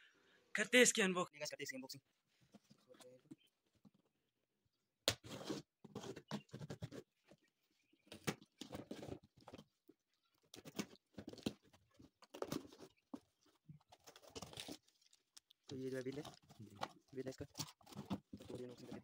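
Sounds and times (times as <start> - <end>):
cardboard scraping and rustling: 5.2 - 7.4, 8.0 - 9.7, 10.4 - 15.0, 16.0 - 19.0.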